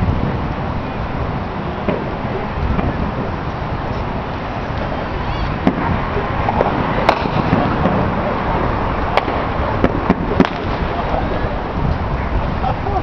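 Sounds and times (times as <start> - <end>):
noisy background: 0.0 - 13.0
fireworks bangs: 5.6 - 11.8.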